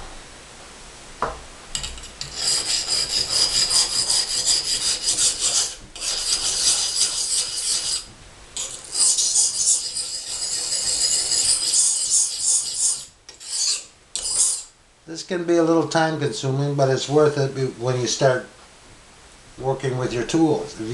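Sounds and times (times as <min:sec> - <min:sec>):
knife rasping on sharpening stone: 0:01.8 - 0:14.7.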